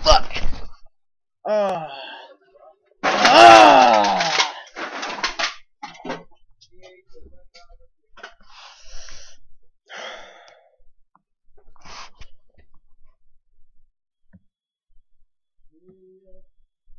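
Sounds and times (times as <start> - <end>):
person gasping heavily: 1.5 - 2.4, 8.6 - 10.7.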